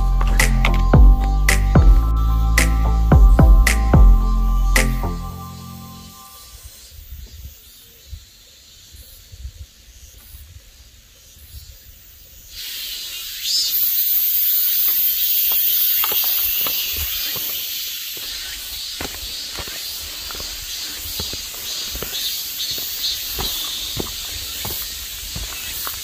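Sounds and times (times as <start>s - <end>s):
footsteps on dirt trail: 0.0s - 2.0s, 14.9s - 26.0s
insects shrilling: 3.7s - 7.8s, 12.4s - 26.0s.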